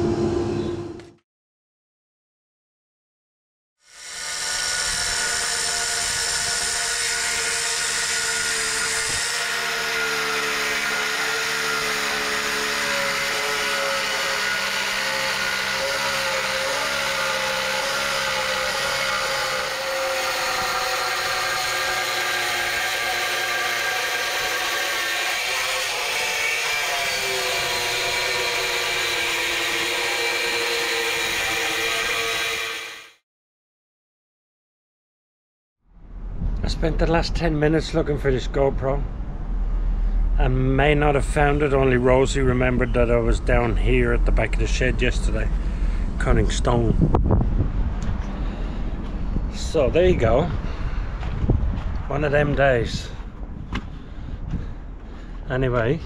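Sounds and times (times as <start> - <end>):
angle grinder cutting stone: 3.8 - 33.2.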